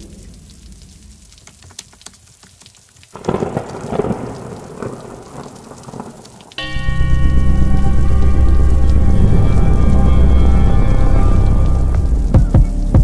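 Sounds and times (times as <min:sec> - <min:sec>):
rain crackling: 0:00.0 - 0:13.0
thunderclap rumbling: 0:03.2 - 0:13.0
music with strong bass: 0:06.6 - 0:13.0.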